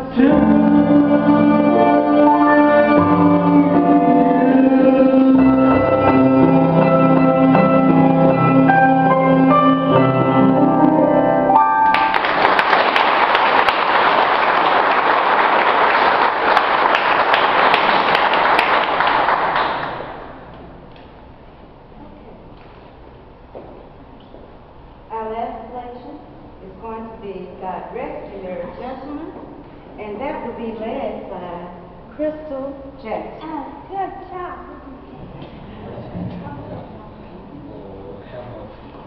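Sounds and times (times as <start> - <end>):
choir singing: 0.0 - 9.1
audience applause: 11.9 - 20.4.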